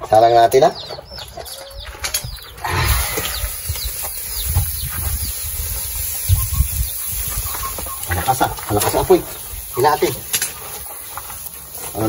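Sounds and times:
fish sizzling on a grill: 0:02.6 - 0:12.0
low fire rumble: 0:02.6 - 0:12.0.

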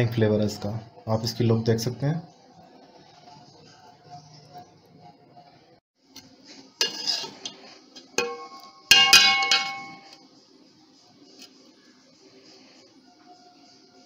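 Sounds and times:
metal ladle scraping cooking pot: 0:06.7 - 0:10.1.

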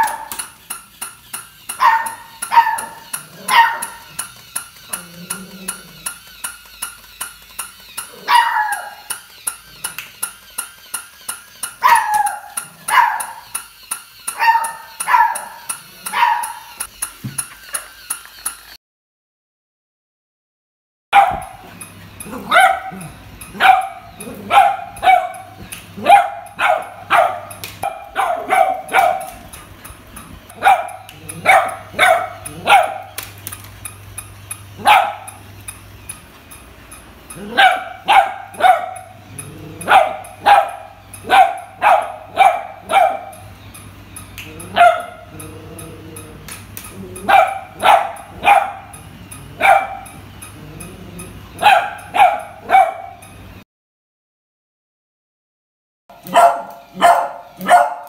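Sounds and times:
puppy barking sharply: 0:01.7 - 0:04.1, 0:08.2 - 0:09.1, 0:11.8 - 0:13.5, 0:14.3 - 0:16.8, 0:21.2 - 0:21.7, 0:22.3 - 0:29.5, 0:30.6 - 0:33.2, 0:34.8 - 0:35.4, 0:37.4 - 0:39.2, 0:39.8 - 0:43.5, 0:44.7 - 0:45.2, 0:47.2 - 0:50.2, 0:51.6 - 0:53.2, 0:56.2 - 0:58.0.

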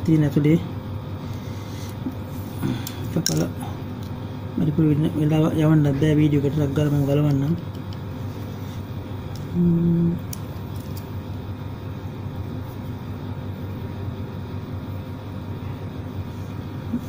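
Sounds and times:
low room rumble: 0:00.0 - 0:17.0
man humming: 0:09.5 - 0:10.3.

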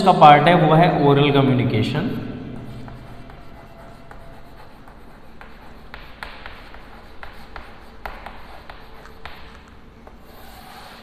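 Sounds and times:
chalk writing on a blackboard: 0:02.6 - 0:11.0.

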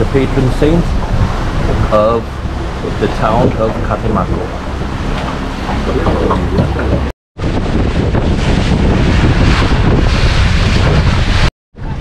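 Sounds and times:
boat motor running: 0:00.0 - 0:12.0
water splashing along hull: 0:00.0 - 0:12.0
wind buffeting microphone: 0:00.0 - 0:12.0.

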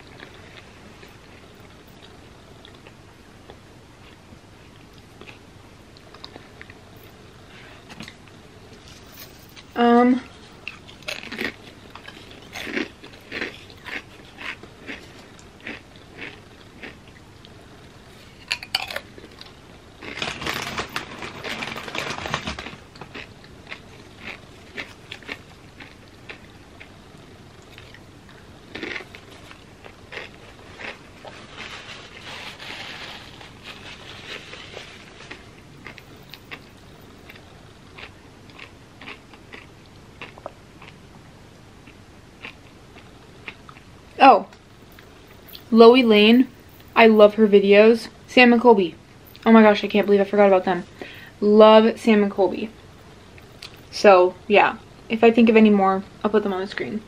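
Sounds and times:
soft chewing: 0:00.0 - 0:20.2, 0:23.0 - 0:41.0.

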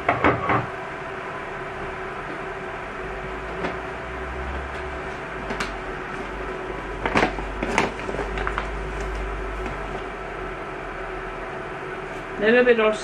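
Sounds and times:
kitchen items knocking and clattering: 0:00.0 - 0:00.7
steady low hum: 0:00.0 - 0:13.0.

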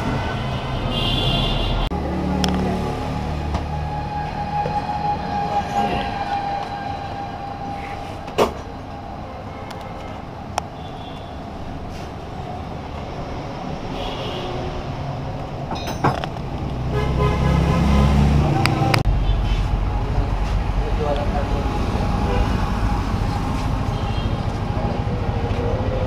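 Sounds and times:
road traffic rumble: 0:00.0 - 0:26.0.

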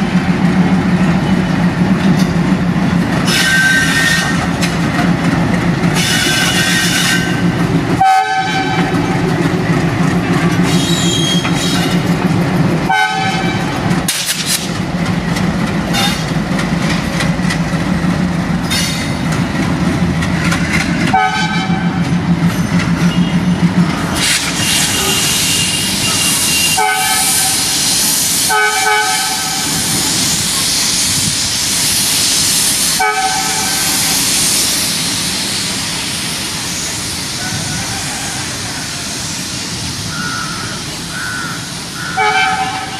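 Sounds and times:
locomotive horn blasts: 0:08.0 - 0:08.9, 0:12.9 - 0:13.7, 0:21.1 - 0:22.0, 0:24.7 - 0:27.7, 0:28.5 - 0:29.9, 0:33.0 - 0:33.9, 0:42.2 - 0:42.9
high hissing noise: 0:29.4 - 0:37.5, 0:38.8 - 0:40.2.

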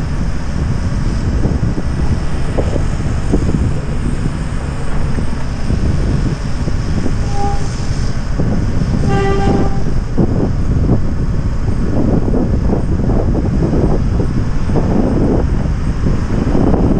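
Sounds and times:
low rumble: 0:00.0 - 0:16.9
wind buffeting microphone: 0:00.0 - 0:16.9
horn toots: 0:07.0 - 0:08.2, 0:08.9 - 0:10.0.

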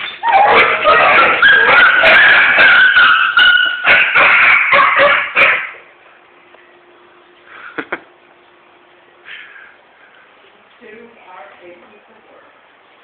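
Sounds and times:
dogs yelping and baying: 0:00.0 - 0:05.9.

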